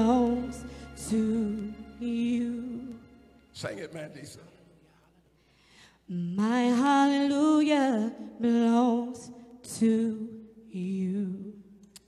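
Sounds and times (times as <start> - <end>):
woman singing unaccompanied: 0.0 - 3.0, 6.1 - 11.6.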